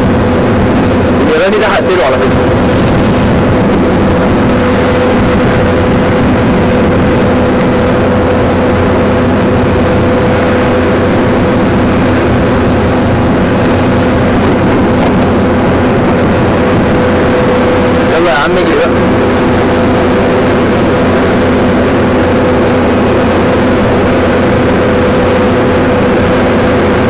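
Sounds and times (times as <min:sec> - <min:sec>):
jet engines rumbling: 0:00.0 - 0:27.0.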